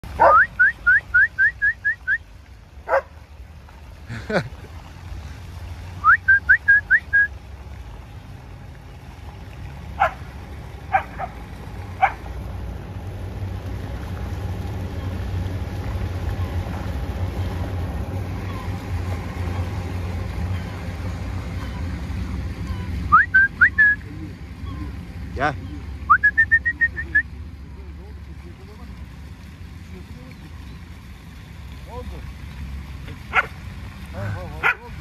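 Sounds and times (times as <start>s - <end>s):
low steady rumble: 0.0s - 35.0s
dog yipping: 0.2s - 0.6s, 12.0s - 12.2s, 33.3s - 33.5s.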